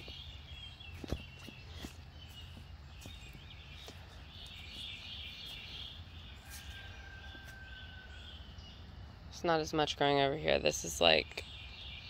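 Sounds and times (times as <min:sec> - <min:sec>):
soft footstep clicks: 0:00.0 - 0:07.6
birds chirping: 0:00.0 - 0:12.0.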